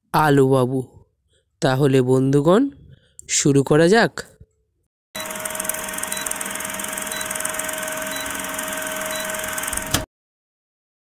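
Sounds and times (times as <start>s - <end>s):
film projector whirring: 5.2s - 10.1s.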